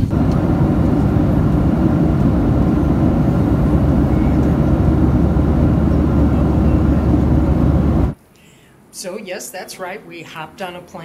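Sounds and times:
jet cabin engine roar: 0.0 - 8.2.

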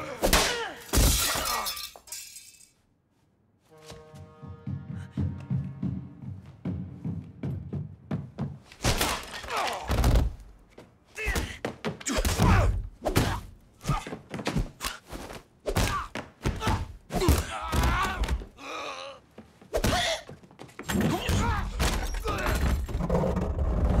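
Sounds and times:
fighters grunting and groaning: 0.0 - 1.7, 11.2 - 14.2, 15.8 - 19.2.

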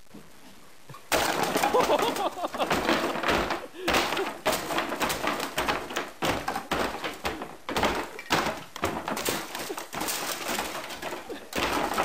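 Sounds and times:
thuds and knocks on a floor: 1.1 - 12.0.

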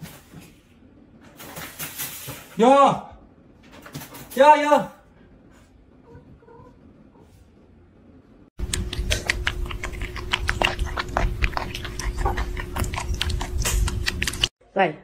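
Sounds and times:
kittens suckling wet clicks: 8.6 - 14.5.

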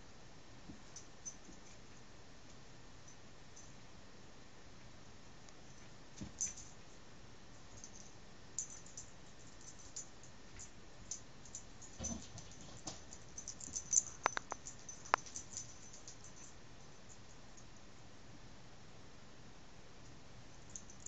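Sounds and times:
faint tinkling ticks: 7.6 - 17.9.

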